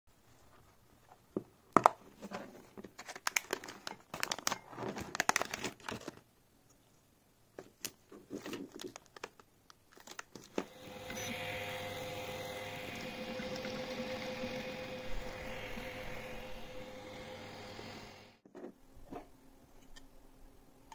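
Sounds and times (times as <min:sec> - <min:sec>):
plastic packaging crinkling: 0:03.0 - 0:06.2, 0:07.8 - 0:10.6.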